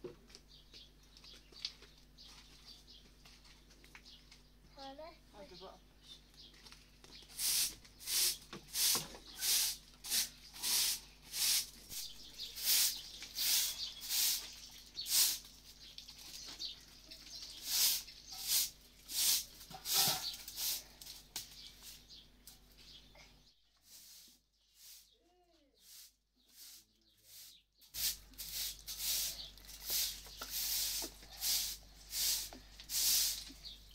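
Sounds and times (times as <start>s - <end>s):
broom sweeping concrete: 7.2s - 15.5s, 17.3s - 22.2s, 23.8s - 33.9s.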